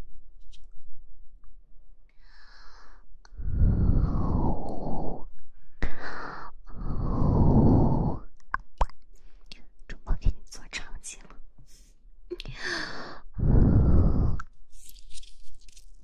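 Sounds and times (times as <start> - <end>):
person exhaling slowly: 12.6 - 14.4.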